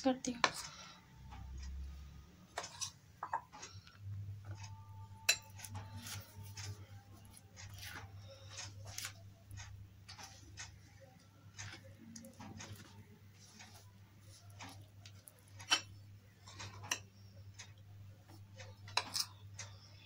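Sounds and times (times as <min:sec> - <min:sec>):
utensils scraping glass bowls: 0:02.6 - 0:03.5, 0:15.4 - 0:17.1, 0:18.9 - 0:19.4.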